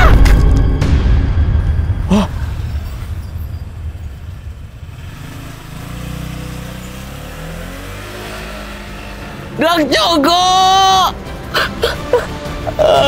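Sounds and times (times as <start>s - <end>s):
motor scooter engine: 4.8s - 9.9s.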